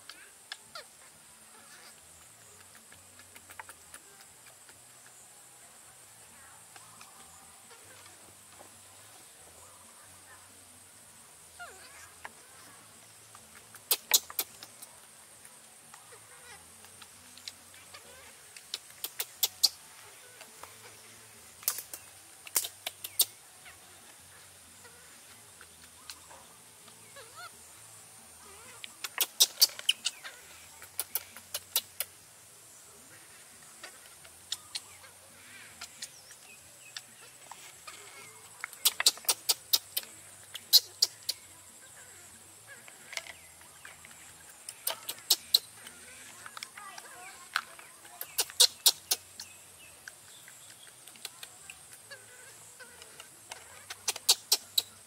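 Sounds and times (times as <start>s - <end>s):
insect drone: 0.0s - 55.0s
baby monkey squeaking: 13.8s - 14.8s, 17.9s - 19.8s, 27.1s - 27.5s, 28.5s - 32.1s, 38.8s - 41.4s, 44.8s - 45.8s, 48.2s - 49.4s, 53.6s - 55.0s.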